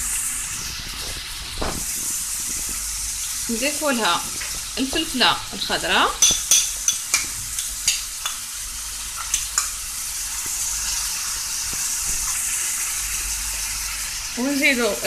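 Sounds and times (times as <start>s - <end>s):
food sizzling in oil: 0.0s - 15.0s
utensil clicking against pan: 6.2s - 8.5s, 9.2s - 9.8s.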